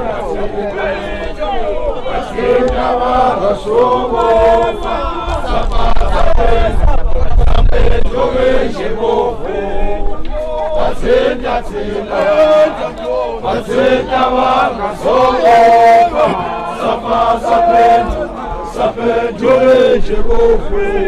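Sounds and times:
men chanting in unison: 0:00.0 - 0:21.0.

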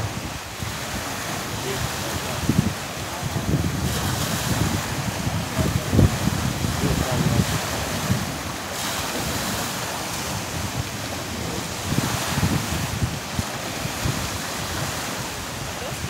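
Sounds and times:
choppy sea water: 0:00.0 - 0:16.0
wind buffeting microphone: 0:00.0 - 0:16.0.

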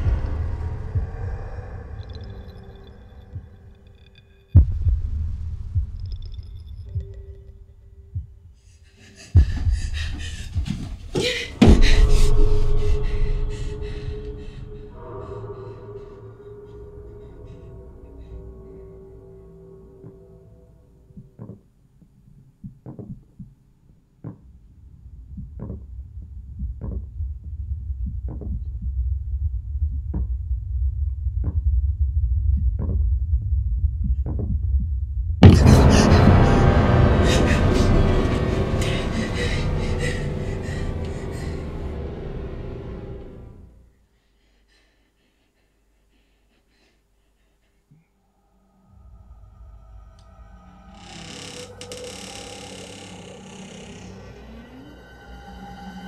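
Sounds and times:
low heartbeat-like thuds: 0:00.0 - 0:02.5, 0:03.2 - 0:03.8, 0:04.5 - 0:07.5, 0:08.1 - 0:08.6, 0:09.2 - 0:15.0, 0:24.2 - 0:41.6
low rumbling drone: 0:00.0 - 0:08.2, 0:09.2 - 0:21.4, 0:35.2 - 0:43.9, 0:48.3 - 0:56.0
slow heavy thuds: 0:09.4 - 0:15.0
loud hit: 0:35.4 - 0:43.4
dense harsh texture: 0:35.4 - 0:43.6
jump-scare stinger: 0:35.4 - 0:43.7.

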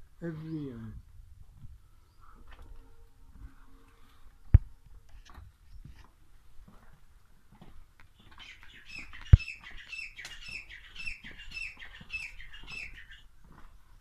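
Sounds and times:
small bird chirping: 0:08.2 - 0:13.3.

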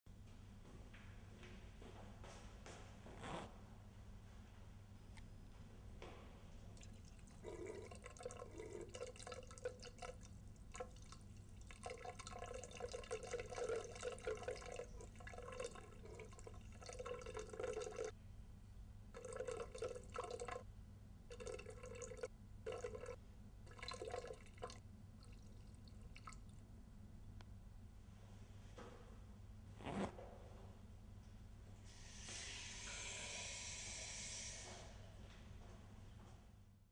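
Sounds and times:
urine stream splashing in urinal: 0:06.8 - 0:18.1.

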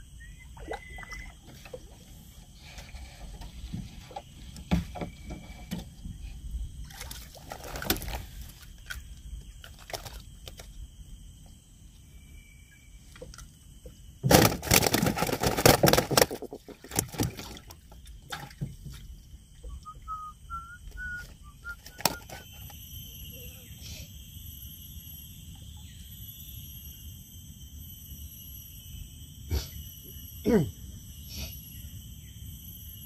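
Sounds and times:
water splashing and sloshing: 0:00.4 - 0:10.8, 0:13.1 - 0:20.1.

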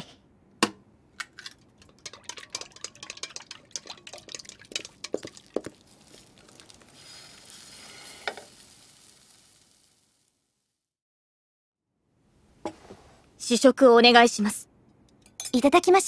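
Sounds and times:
whisk clinking against a bowl: 0:01.8 - 0:05.7
batter sizzling in a pan: 0:03.7 - 0:10.8.

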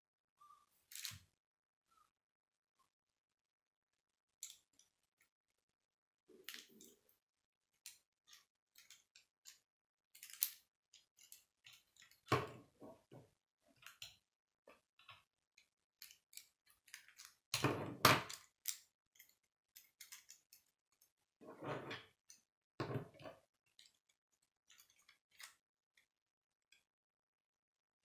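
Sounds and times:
plastic pieces clicking and rattling: 0:00.9 - 0:01.2, 0:04.4 - 0:04.9, 0:07.8 - 0:13.1, 0:15.0 - 0:21.2, 0:23.2 - 0:26.1.

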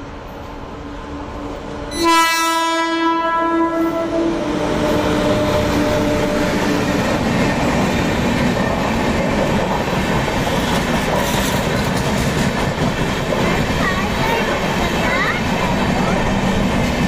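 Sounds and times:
train wheels roaring on rails: 0:00.0 - 0:17.0
train horn: 0:01.9 - 0:07.0.

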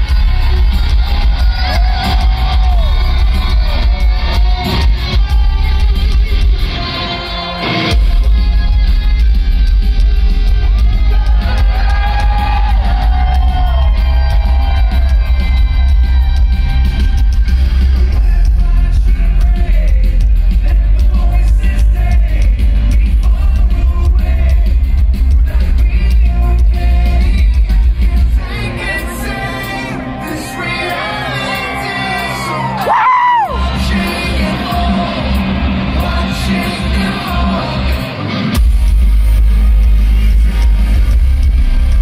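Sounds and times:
live rock band: 0:00.0 - 0:42.0
man singing: 0:18.0 - 0:38.3, 0:39.6 - 0:42.0.

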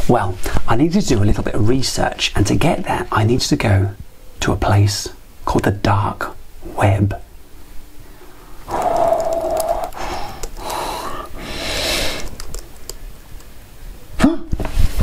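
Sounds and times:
hissing breath: 0:08.0 - 0:12.5
laptop keyboard clicks: 0:08.7 - 0:10.8, 0:12.1 - 0:13.5.

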